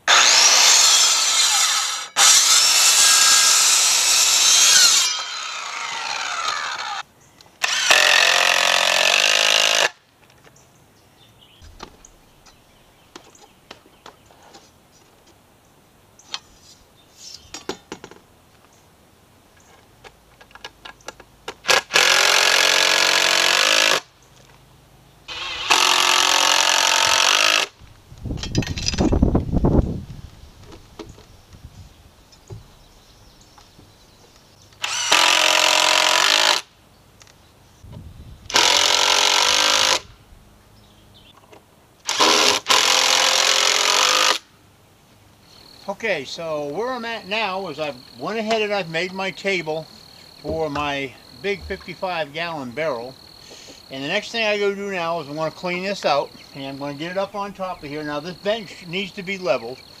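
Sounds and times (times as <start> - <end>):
circular saw cutting wood: 0.0 - 7.0, 7.6 - 10.0, 25.3 - 27.7, 34.8 - 36.7, 38.5 - 40.1, 42.1 - 44.4
cordless drill driving screws: 0.0 - 7.0, 7.6 - 10.0, 25.3 - 27.7, 34.8 - 36.7, 38.5 - 40.0, 42.1 - 44.4.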